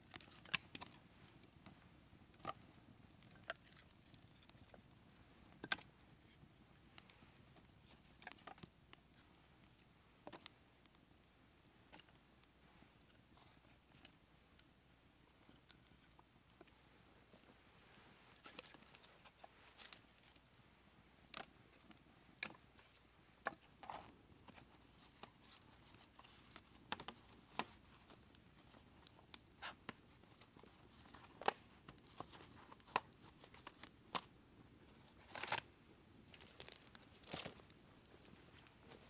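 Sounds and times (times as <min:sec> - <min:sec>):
campfire crackling: 0:00.0 - 0:16.8, 0:24.1 - 0:35.6.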